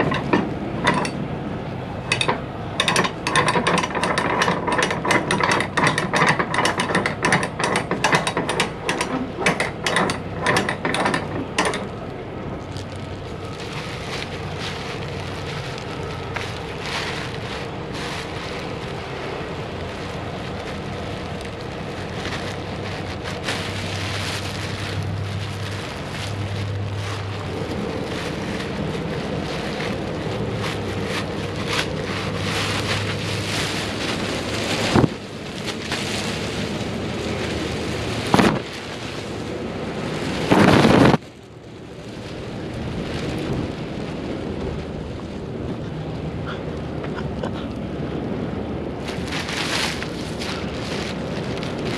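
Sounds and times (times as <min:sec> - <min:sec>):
plastic wrap crinkling: 0:10.2 - 0:45.7, 0:48.9 - 0:51.9.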